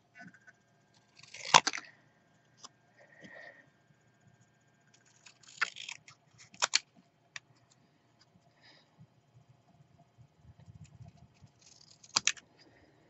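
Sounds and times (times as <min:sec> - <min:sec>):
scissors snipping cardstock: 0:01.2 - 0:01.8, 0:05.0 - 0:06.8, 0:11.6 - 0:12.4.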